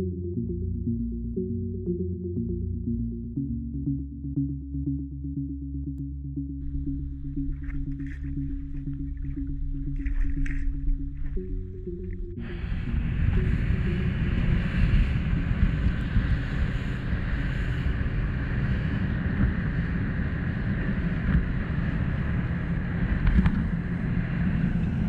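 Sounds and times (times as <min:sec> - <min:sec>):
motorboat motor: 0:06.0 - 0:25.0
rushing water: 0:06.6 - 0:11.6
wind buffeting microphone: 0:06.6 - 0:25.0.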